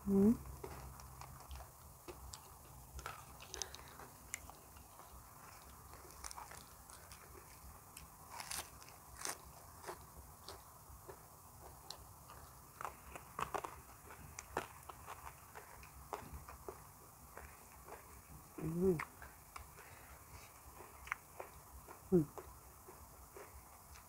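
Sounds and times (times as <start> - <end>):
person crunching leafy vegetables: 0.0 - 16.6.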